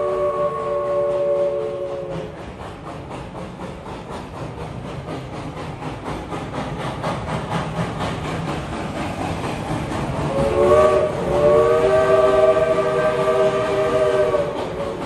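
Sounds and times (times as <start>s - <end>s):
steam whistle chord: 0.0s - 2.3s, 10.3s - 14.6s
rhythmic train clatter: 0.0s - 15.0s.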